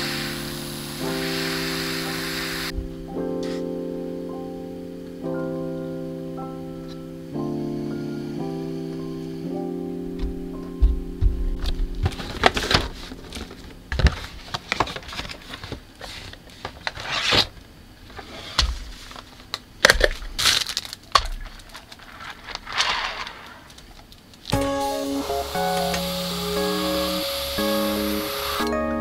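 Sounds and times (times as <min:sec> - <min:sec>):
sharp plastic clicks and cracks: 0:19.4 - 0:24.6.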